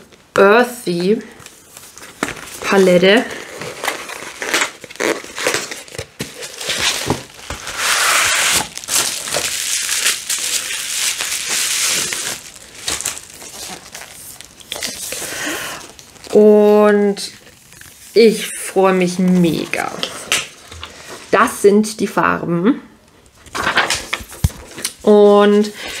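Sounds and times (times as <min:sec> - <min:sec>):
bubble wrap crinkling: 0:01.3 - 0:21.4.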